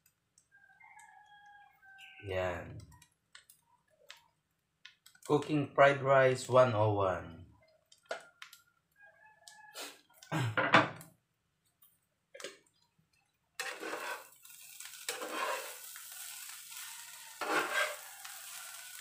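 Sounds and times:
metal spatula scraping a pan: 13.6s - 19.0s
rice sizzling in a frying pan: 13.6s - 19.0s.

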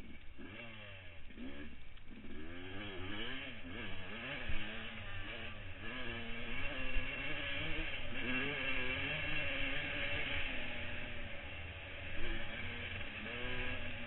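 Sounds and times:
motocross bike engine revving: 0.0s - 14.0s.

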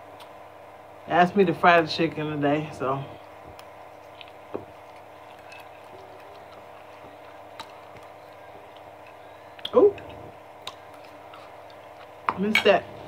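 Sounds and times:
steady low hum: 0.0s - 13.0s
soft chewing: 3.1s - 12.4s.

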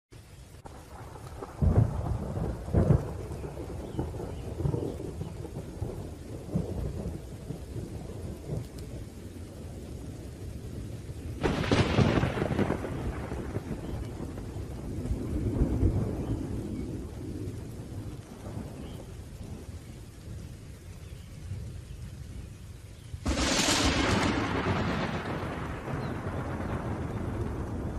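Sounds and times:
steady rain: 0.1s - 27.9s
low thunder rumble: 0.5s - 27.9s
sharp thunderclap: 0.7s - 8.8s, 11.4s - 19.7s, 23.2s - 27.9s.

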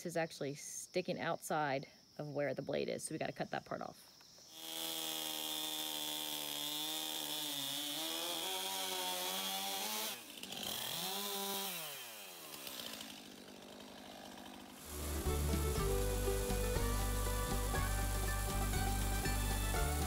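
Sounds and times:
chainsaw cutting log: 4.4s - 20.0s.

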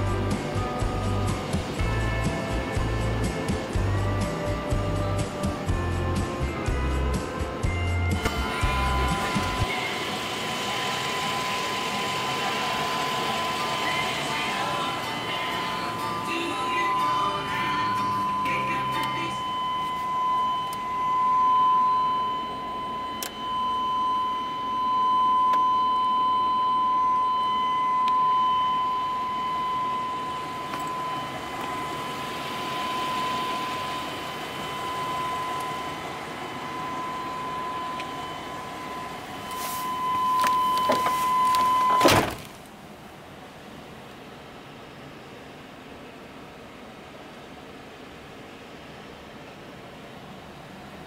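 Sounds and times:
car door warning tone: 8.1s - 10.3s, 10.9s - 42.5s.

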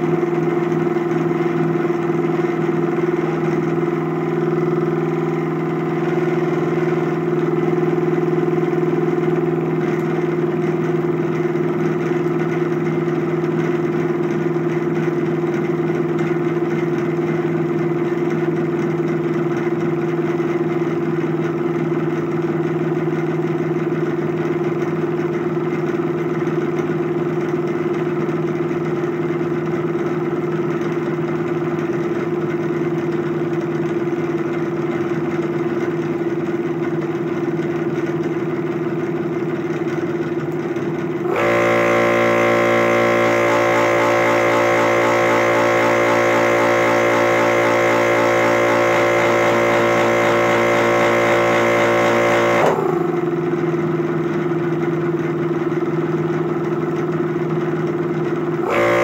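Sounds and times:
compressor motor humming: 41.2s - 54.5s, 58.5s - 59.0s.

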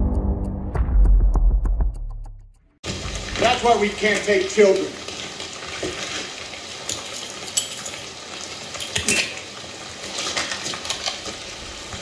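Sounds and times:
rain through speakers: 2.8s - 12.0s.

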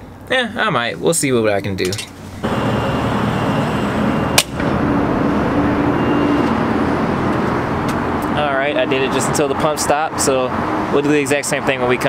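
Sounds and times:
fuel pump rushing hiss: 2.3s - 4.4s.

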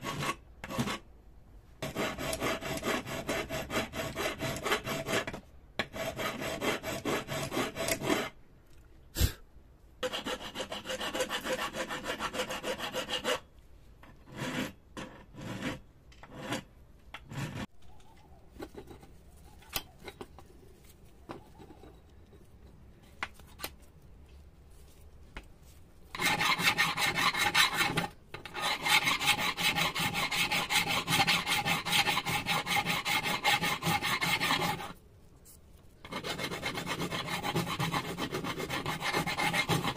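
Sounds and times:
file scraping metal: 0.0s - 1.0s, 1.8s - 8.4s, 10.0s - 13.5s, 14.1s - 17.7s, 26.1s - 35.0s, 36.0s - 39.9s.

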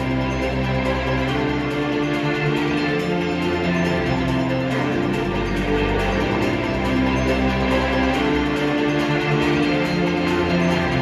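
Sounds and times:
music with long held chords: 0.0s - 11.0s.

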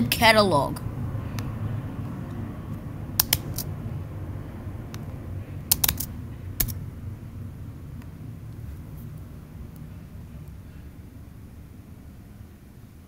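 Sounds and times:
low background rumble: 0.0s - 13.0s
keyboard keys clicking: 5.7s - 6.7s.

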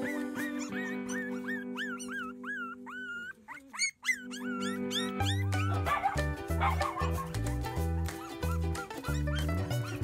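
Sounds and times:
puppies yipping and whining: 0.0s - 7.4s, 8.0s - 10.0s
background music with held chords: 4.5s - 10.0s.

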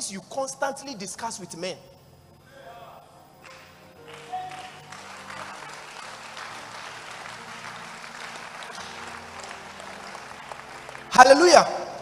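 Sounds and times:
congregation applauding: 3.3s - 12.0s.

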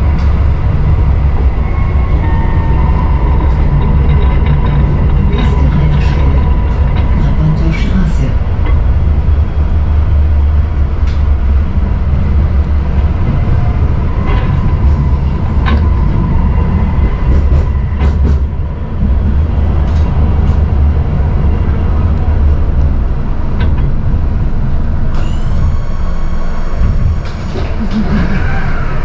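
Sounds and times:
tram rumbling on rails: 0.0s - 29.0s
faint whine: 22.2s - 29.0s.

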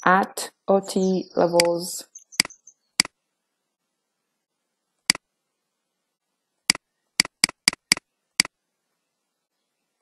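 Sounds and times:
computer mouse clicking: 6.7s - 8.5s.

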